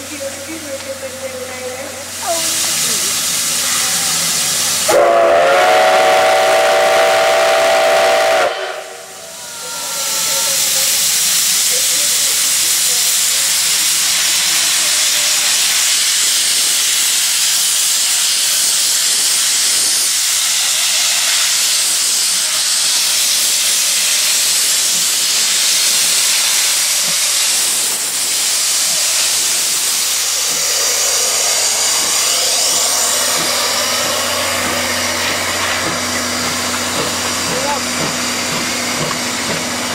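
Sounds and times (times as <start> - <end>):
loud hiss of steam: 0.0 - 39.9
steam whistle blast: 4.8 - 10.8.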